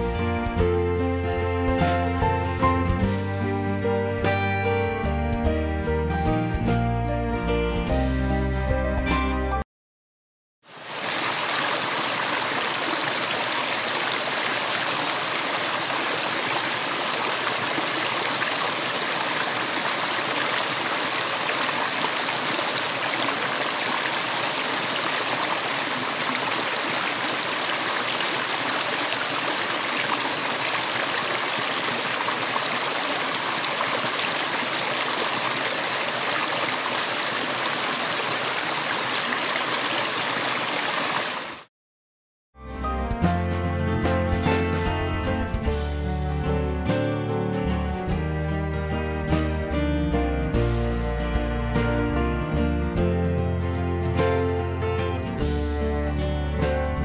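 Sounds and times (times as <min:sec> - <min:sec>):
stream rushing over rocks: 0:10.7 - 0:41.7.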